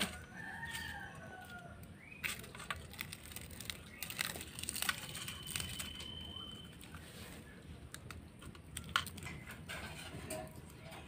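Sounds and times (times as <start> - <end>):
dry leaves crackling and crunching: 0.0 - 7.5.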